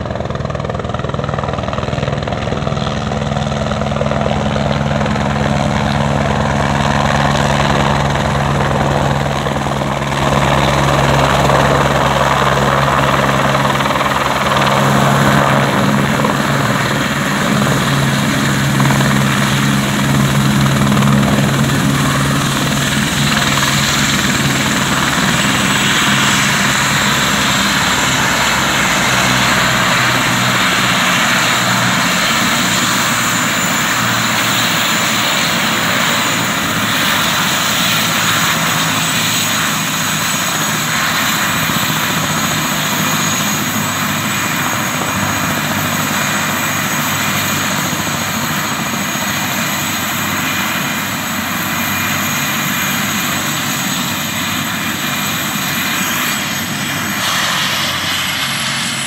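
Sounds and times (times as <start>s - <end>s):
helicopter running: 0.0s - 59.0s.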